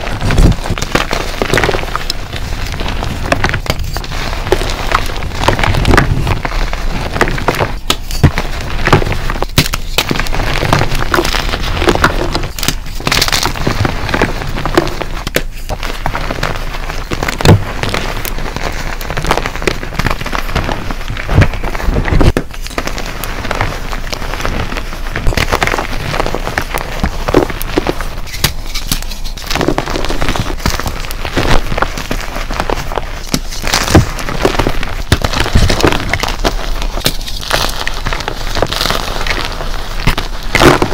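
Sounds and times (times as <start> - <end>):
chalk crunching and crackling: 0.0 - 40.9
chalk chunks snapping: 25.2 - 40.9.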